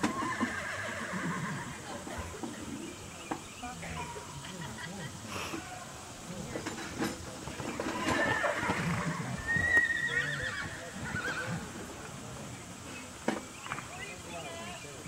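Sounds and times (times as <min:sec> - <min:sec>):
horse whinnying: 0:00.0 - 0:01.8, 0:07.6 - 0:11.9.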